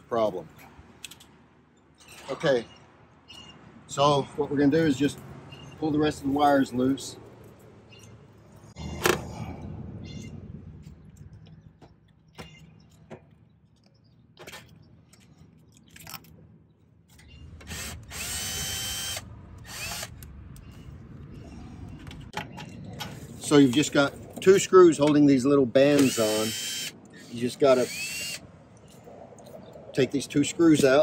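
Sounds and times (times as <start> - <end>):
cordless drill whirring: 17.6 - 20.2, 25.9 - 28.4.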